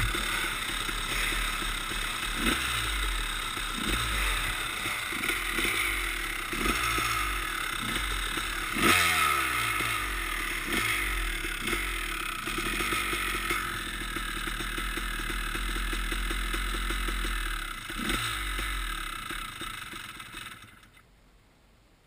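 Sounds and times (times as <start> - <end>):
dirt bikes idling: 0.0 - 21.0
engine throttle blips: 0.0 - 21.0.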